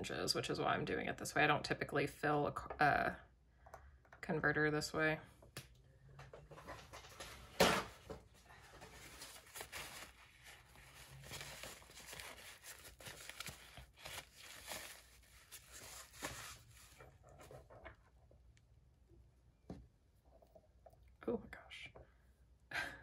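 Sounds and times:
paper towel rustling and crinkling: 0:06.6 - 0:17.8.

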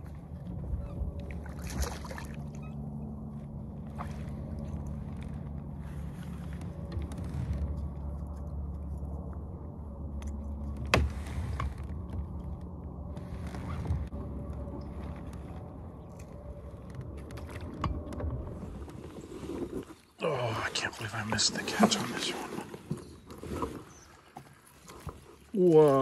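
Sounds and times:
low rumble on open water: 0:00.0 - 0:26.0
gear knocking and clicking in boat: 0:02.4 - 0:19.2.

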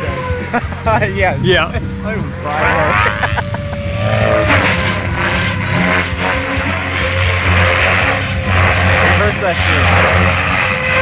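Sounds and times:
model helicopter flying: 0:00.0 - 0:11.0.

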